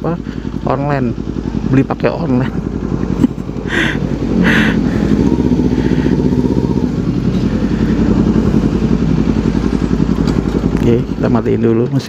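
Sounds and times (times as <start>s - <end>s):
motorcycle engine idling: 0.0s - 12.0s.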